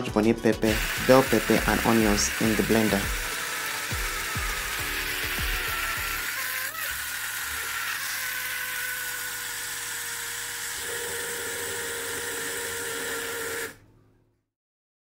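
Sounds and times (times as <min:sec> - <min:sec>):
blender motor whining: 0:00.6 - 0:13.9.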